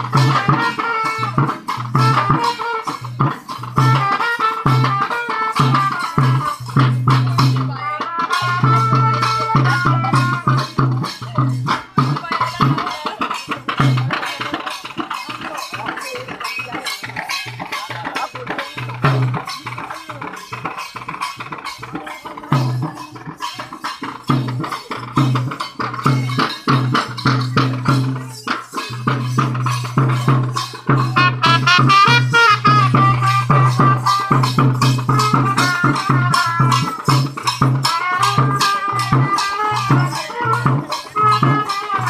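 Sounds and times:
barrel drum fast rhythm: 0.0s - 42.0s
rattling percussion: 0.0s - 42.0s
high-pitched melody: 27.0s - 42.0s.

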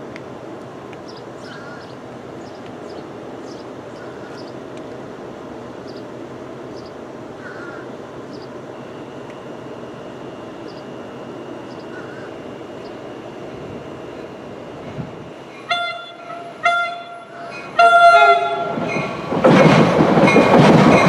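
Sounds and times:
distant road traffic hum: 0.0s - 18.7s
small birds chirping: 1.0s - 4.7s, 5.8s - 8.6s, 10.6s - 11.0s, 11.6s - 13.1s
loud bird call: 1.4s - 4.6s.

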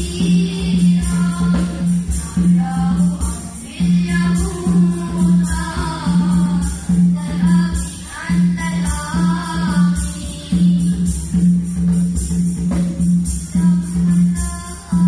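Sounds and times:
hand percussion: 0.0s - 15.0s.

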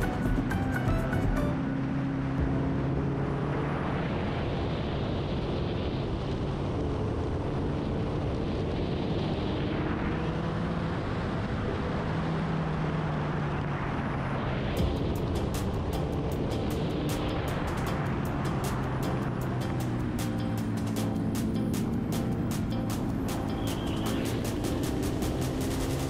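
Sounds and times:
motorcycle engine running: 0.0s - 3.2s, 14.8s - 26.0s
wind rush on microphone: 3.3s - 26.0s.

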